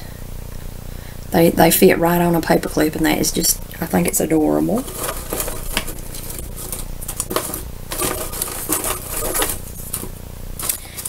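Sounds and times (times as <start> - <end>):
craft items clicking and rustling: 4.8 - 11.0.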